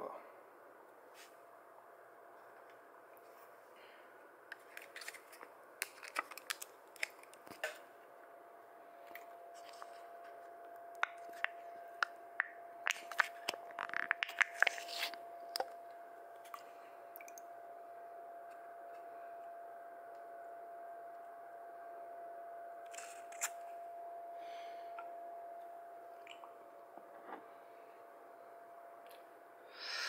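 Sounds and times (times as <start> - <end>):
plastic cup crinkling: 4.5 - 7.8, 12.9 - 15.7
faint steady tone: 6.7 - 13.8, 14.5 - 30.0.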